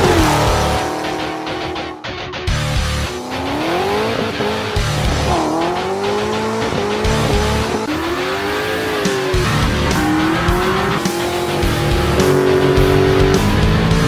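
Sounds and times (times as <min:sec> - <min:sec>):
car engine accelerating: 0:00.0 - 0:14.0
music with heavy beat: 0:00.0 - 0:14.0.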